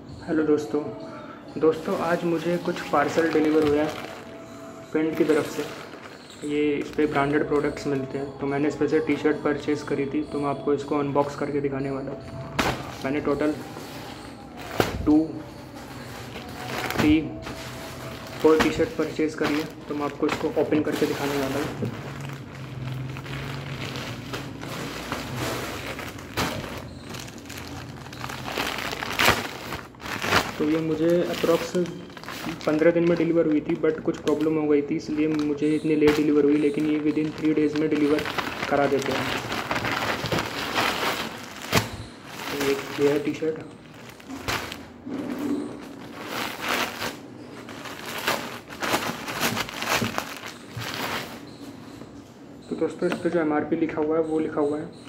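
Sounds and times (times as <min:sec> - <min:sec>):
plastic bag crinkling: 0:01.6 - 0:10.1, 0:11.2 - 0:51.7.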